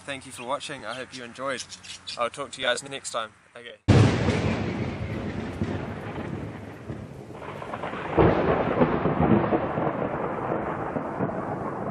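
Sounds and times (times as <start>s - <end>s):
loud thunderclap: 3.9s - 11.9s
rolling thunder rumble: 3.9s - 11.9s.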